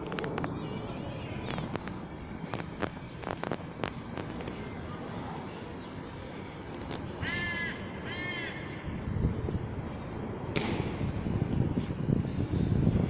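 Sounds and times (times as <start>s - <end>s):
crow cawing: 7.2s - 8.8s.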